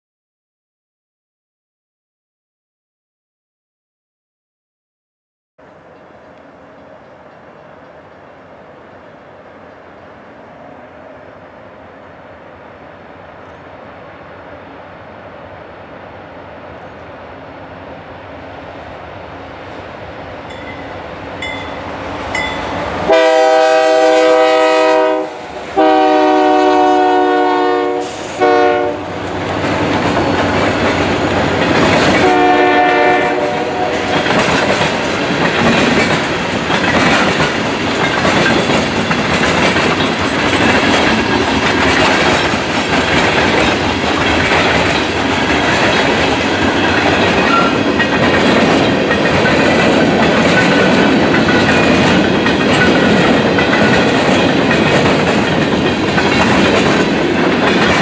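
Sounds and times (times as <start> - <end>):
train wheels clacking over rails: 20.5 - 58.0
locomotive air horn blasts: 23.0 - 29.2, 32.2 - 34.2.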